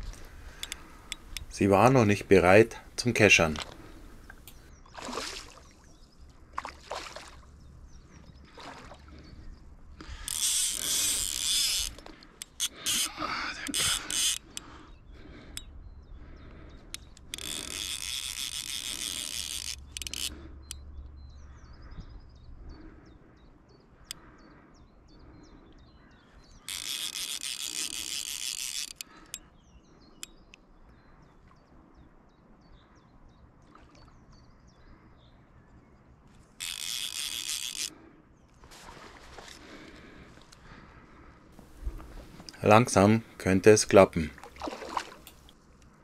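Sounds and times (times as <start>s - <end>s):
single reel clicks: 0.0s - 1.5s, 16.9s - 20.8s, 26.6s - 29.5s, 36.6s - 37.9s
faint birdsong: 0.0s - 46.0s
fishing reel ratchet buzzing: 10.0s - 14.6s, 17.0s - 20.8s, 26.6s - 29.4s, 36.6s - 37.9s.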